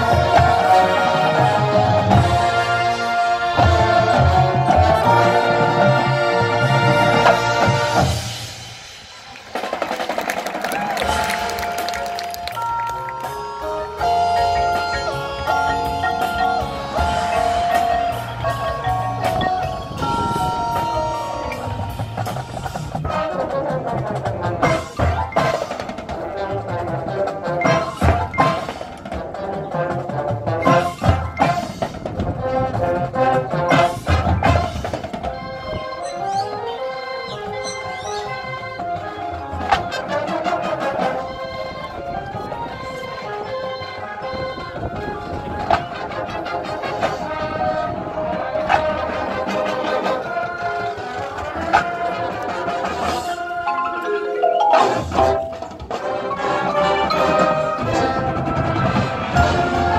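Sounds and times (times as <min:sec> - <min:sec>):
brass chords: 0:00.0 - 0:09.7, 0:10.8 - 0:59.9
marching band playing: 0:00.0 - 0:59.9
marimba mallet percussion: 0:10.8 - 0:22.9, 0:53.2 - 0:58.3.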